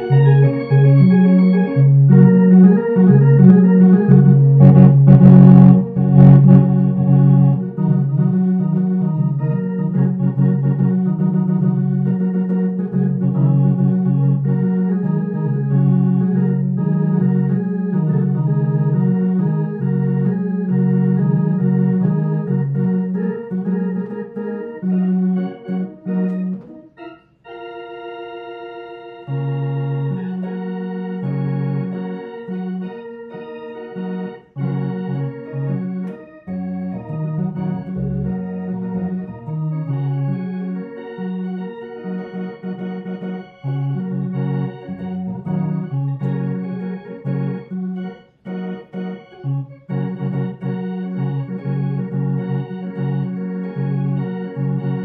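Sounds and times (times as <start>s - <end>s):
organ playing blues: 0.0s - 55.0s.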